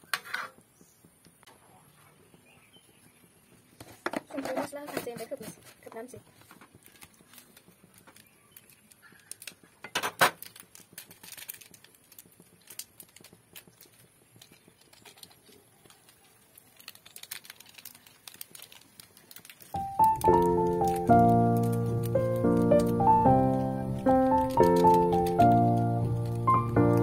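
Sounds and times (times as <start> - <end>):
ladle scraping metal wok: 0.0 - 0.6.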